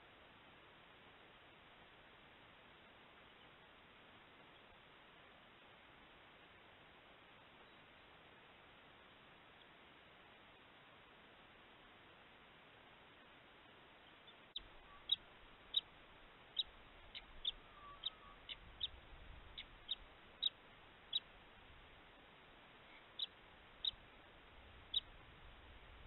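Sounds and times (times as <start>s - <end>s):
duck whistling: 17.4s - 18.6s.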